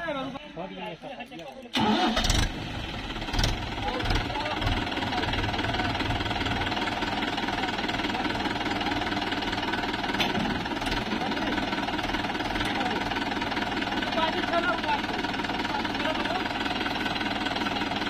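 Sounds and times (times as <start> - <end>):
tractor diesel engine clattering: 1.7 - 18.0.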